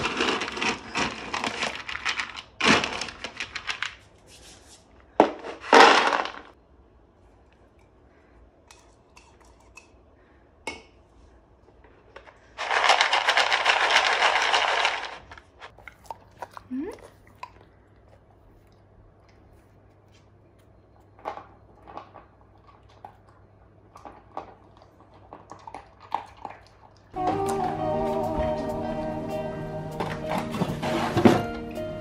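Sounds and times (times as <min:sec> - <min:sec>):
kibble clatter: 0:00.0 - 0:04.1, 0:12.2 - 0:16.5, 0:21.1 - 0:23.3
dry kibble rattling: 0:00.0 - 0:04.2, 0:12.4 - 0:16.6.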